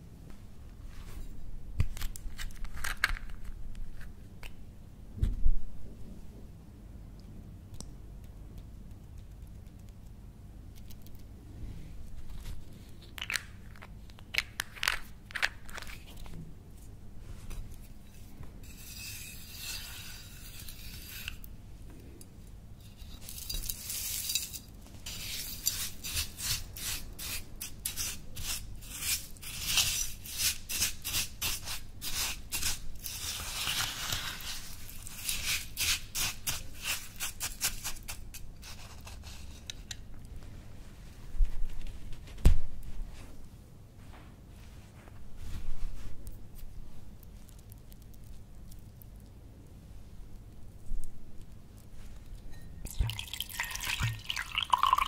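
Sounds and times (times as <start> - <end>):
metal spoon scraping gritty granules: 18.6 - 21.5, 22.8 - 39.1.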